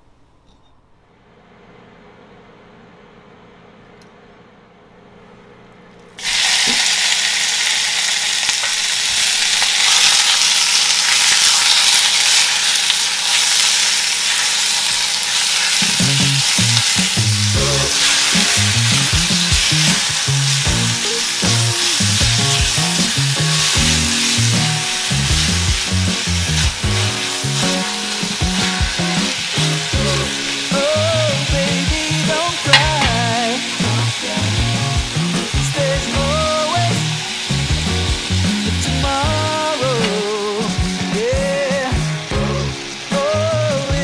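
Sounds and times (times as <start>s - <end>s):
meat sizzling in hot oil: 6.2s - 44.0s
music with low bass line: 16.0s - 42.8s.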